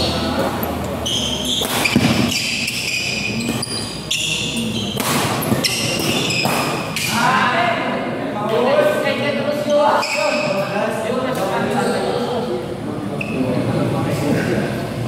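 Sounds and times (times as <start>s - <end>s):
shoes squeaking on court floor: 0.0s - 7.2s, 9.6s - 10.8s, 11.4s - 12.4s, 13.2s - 13.6s
rackets hitting shuttlecock: 0.3s - 7.2s.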